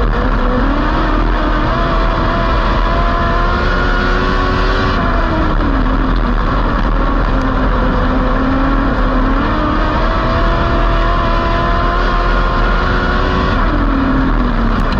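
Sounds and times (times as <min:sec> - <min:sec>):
race car engine: 0:00.0 - 0:14.9.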